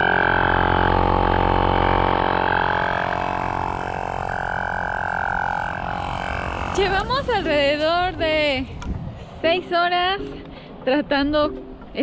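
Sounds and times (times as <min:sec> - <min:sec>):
tyre inflator buzzing drone: 0:00.0 - 0:09.6.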